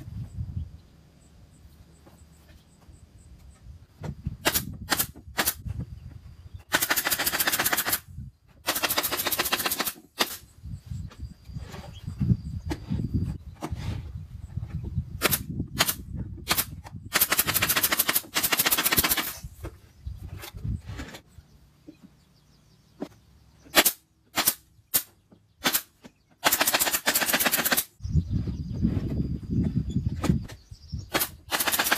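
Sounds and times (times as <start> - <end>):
nail gun firing into wood: 4.4 - 5.6, 6.7 - 10.4, 15.2 - 19.4, 23.7 - 27.9, 31.1 - 31.9.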